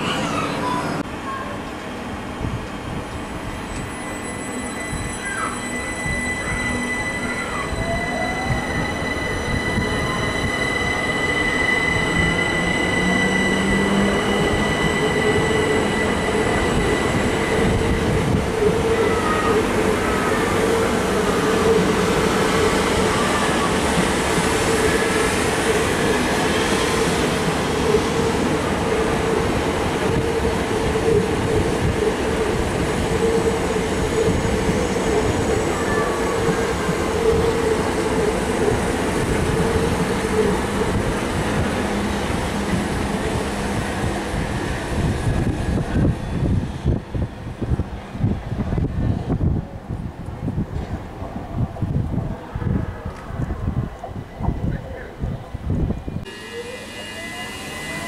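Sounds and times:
train rolling past humming: 0.0s - 58.0s
train wheels rolling on rails: 0.0s - 58.0s
high electric whine: 56.3s - 58.0s.

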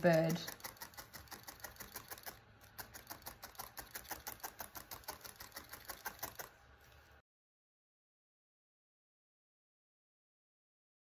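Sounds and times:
felting needle stabbing foam: 0.0s - 6.6s.

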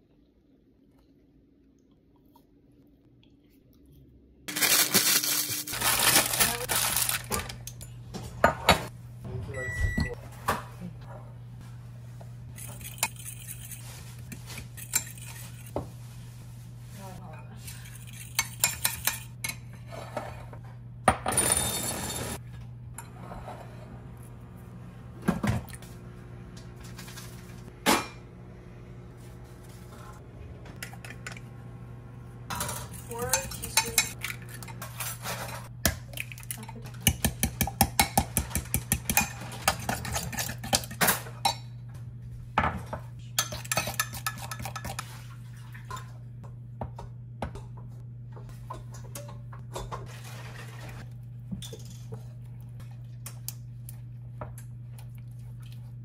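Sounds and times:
low steady hum: 22.3s - 56.0s.

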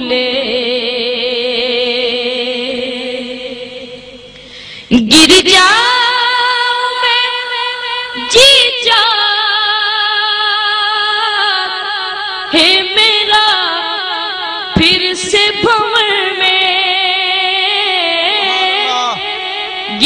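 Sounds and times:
boy singing: 17.7s - 20.0s.

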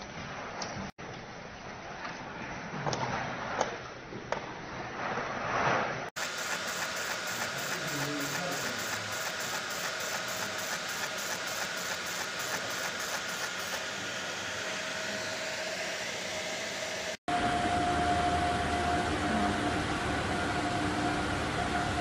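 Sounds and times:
quick regular ticking: 6.2s - 13.8s
machinery hiss: 6.2s - 17.2s.

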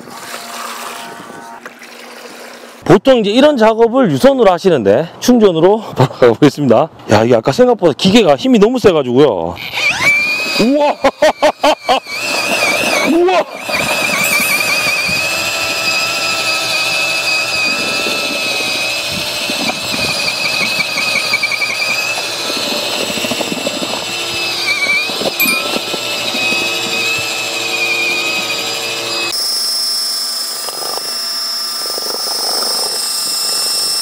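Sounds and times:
mixer drill motor whine: 9.6s - 34.0s
paddle churning mortar: 12.1s - 29.4s.

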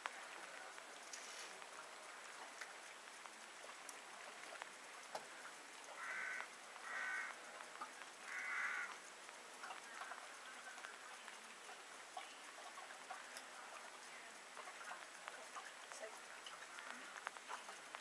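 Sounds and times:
faint clicks: 0.0s - 18.0s
bird calling: 6.0s - 7.4s, 8.2s - 9.0s.

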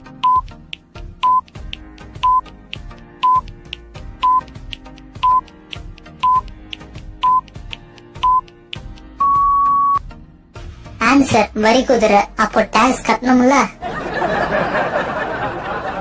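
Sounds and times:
soft background music: 0.0s - 16.0s
short high timer beeps: 0.2s - 0.4s, 1.2s - 1.4s, 2.2s - 2.5s, 3.2s - 3.4s, 4.2s - 4.5s, 5.2s - 5.4s, 6.2s - 6.5s, 7.2s - 7.5s, 8.2s - 8.4s, 9.2s - 10.0s.

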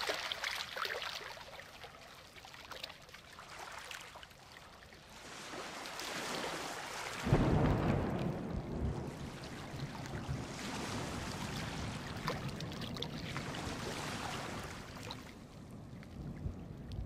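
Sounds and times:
ocean surf washing: 5.0s - 17.0s
thunder rumble: 7.2s - 17.0s.

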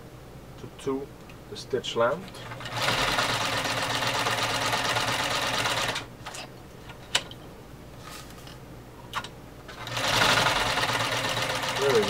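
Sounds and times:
sewing machine stitching: 2.4s - 6.0s, 9.7s - 12.0s.

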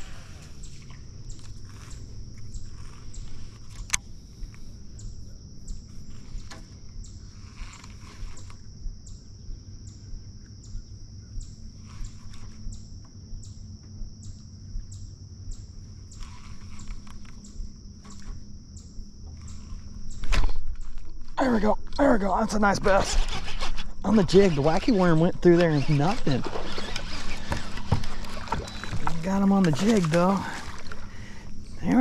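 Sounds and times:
water: 0.0s - 8.7s, 16.1s - 32.0s
insects buzzing high-pitched: 0.0s - 32.0s
wind: 0.0s - 32.0s.

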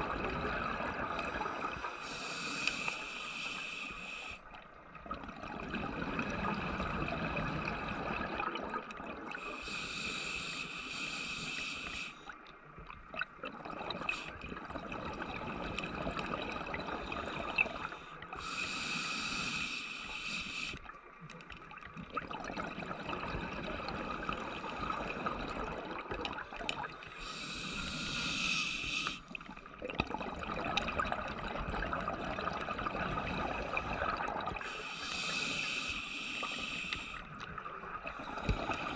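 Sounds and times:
bubbling water: 0.0s - 3.0s, 4.6s - 9.7s, 12.3s - 18.6s, 20.8s - 27.8s, 29.2s - 35.6s, 37.2s - 38.9s
hissing breath through breathing gear: 1.4s - 4.5s, 9.4s - 12.3s, 17.4s - 20.8s, 27.2s - 29.3s, 34.6s - 37.3s.

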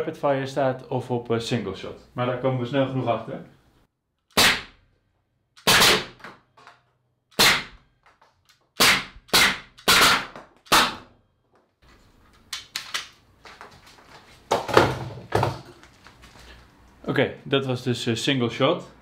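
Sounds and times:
pneumatic blaster shots: 4.3s - 4.8s, 5.6s - 6.2s, 7.4s - 7.8s, 8.8s - 11.1s.

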